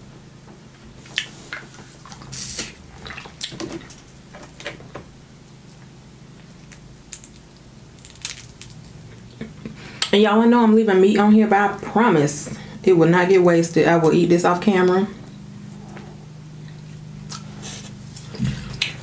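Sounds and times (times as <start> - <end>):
crab shells cracking: 6.6 - 9.3.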